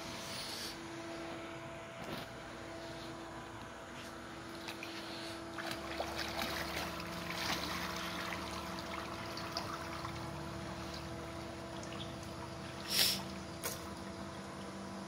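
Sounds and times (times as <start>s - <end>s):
pool water splashing and lapping: 4.4s - 15.0s.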